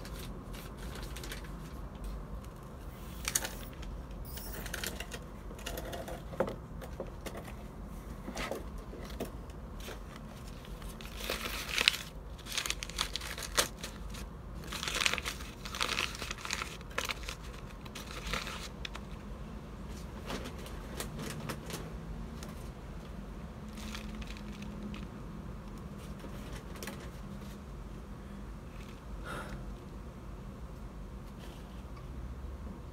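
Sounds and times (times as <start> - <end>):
newspaper crinkling and rustling: 0.0 - 3.9, 9.8 - 19.2, 19.9 - 27.6.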